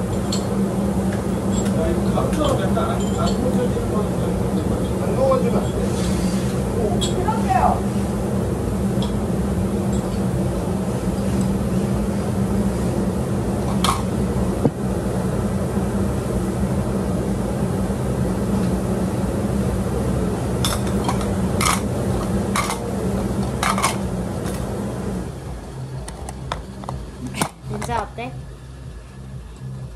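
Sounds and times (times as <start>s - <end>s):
dishes clinking: 1.5s - 3.7s, 20.6s - 24.7s
appliance motor humming: 16.2s - 29.7s.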